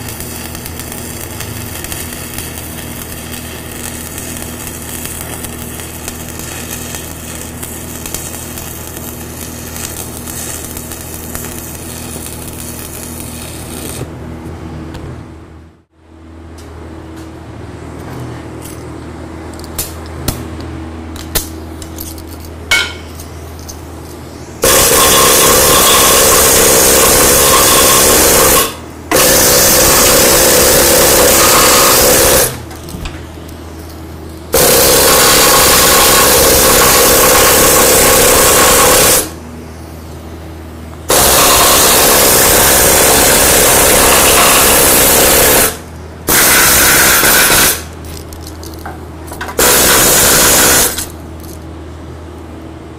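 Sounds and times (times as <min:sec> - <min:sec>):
power tool on steel: 0:24.6 - 0:32.6, 0:34.6 - 0:39.3, 0:41.1 - 0:47.9.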